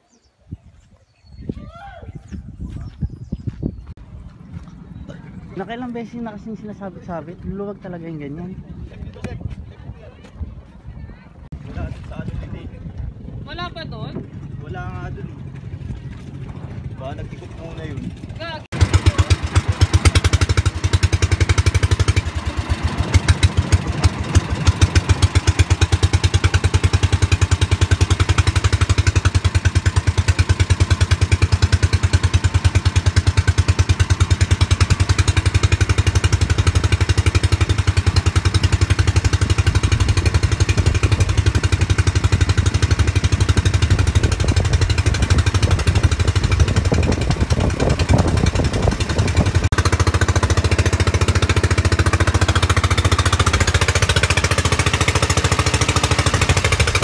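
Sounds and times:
boat engine chugging: 4.0s - 57.0s.

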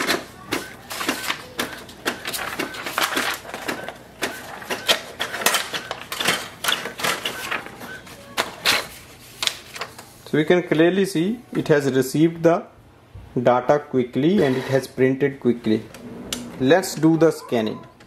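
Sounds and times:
inkjet printer printing: 0.0s - 9.2s
printer clicks and clatters: 0.0s - 10.0s.

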